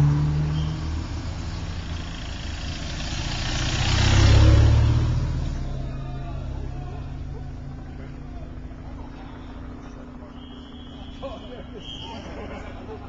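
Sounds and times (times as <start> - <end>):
car driving past: 0.0 - 11.0.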